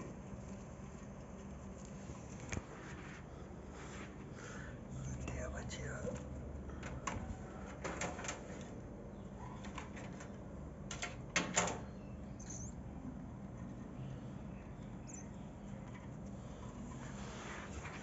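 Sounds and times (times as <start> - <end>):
high bird chirps: 11.9 - 12.9, 14.5 - 15.5.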